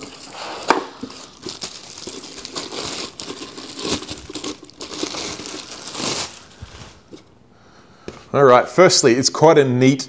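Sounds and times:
plastic packaging crinkling: 0.0s - 7.3s.

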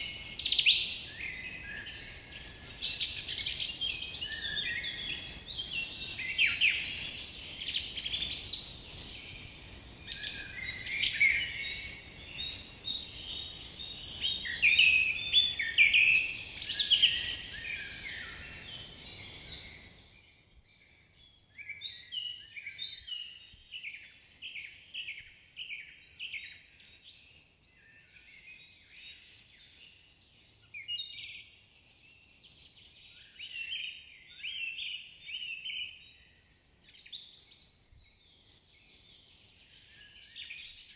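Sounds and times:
background hiss: 0.0s - 20.9s
birds chirping and trilling: 0.0s - 40.9s.

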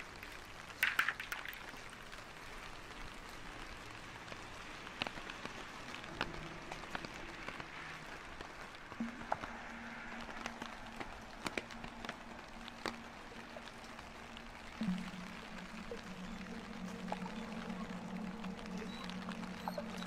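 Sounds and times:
drips pattering: 0.0s - 2.6s, 4.5s - 20.0s
rain on a wet street: 0.0s - 20.0s
faint low hum: 9.0s - 20.0s.

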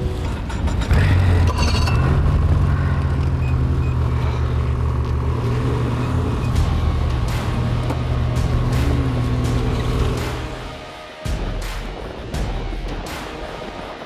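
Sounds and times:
snowmobile engines running: 0.0s - 11.0s.

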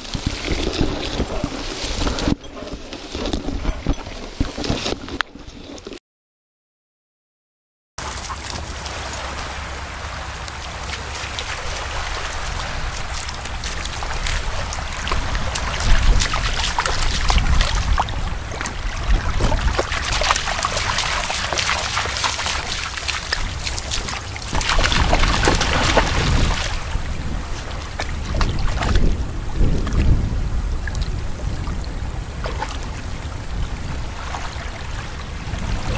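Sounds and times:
dog splashing through water: 8.0s - 30.2s, 32.3s - 35.9s
wind on microphone: 8.0s - 35.9s.

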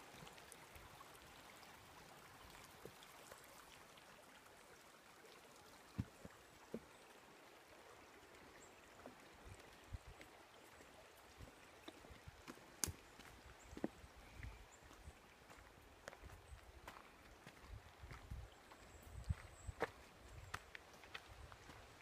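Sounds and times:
forest stream rushing: 0.0s - 22.0s
footsteps on wooden boardwalk: 11.4s - 21.9s.

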